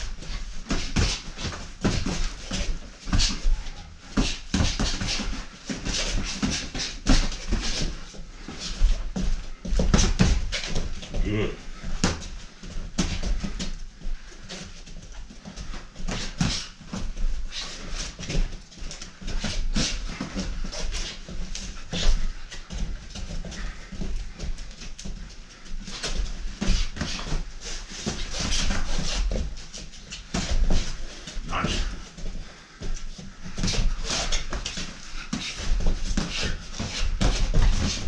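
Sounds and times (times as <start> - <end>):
shoes scuffing on rubber mat: 14.5 - 38.0.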